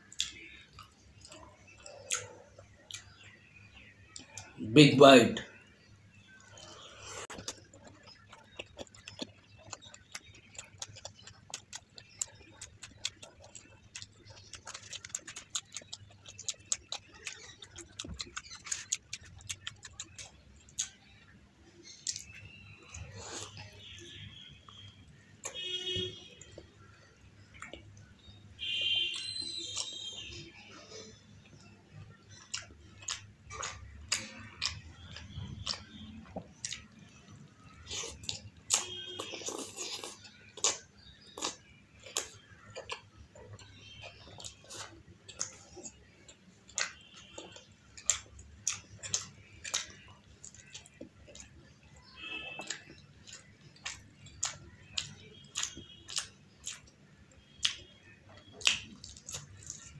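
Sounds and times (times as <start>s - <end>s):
person biting and chewing: 37.8s - 43.0s
wet mouth clicks and smacks: 57.6s - 59.9s.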